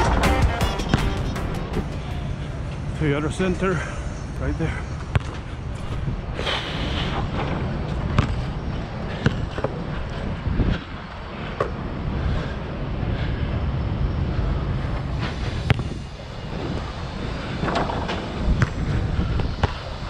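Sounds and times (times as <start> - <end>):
city traffic: 0.0 - 20.0
wind: 0.0 - 20.0
basketball bouncing: 5.0 - 5.9, 8.0 - 8.5, 9.1 - 9.7, 18.6 - 18.8, 19.6 - 19.9.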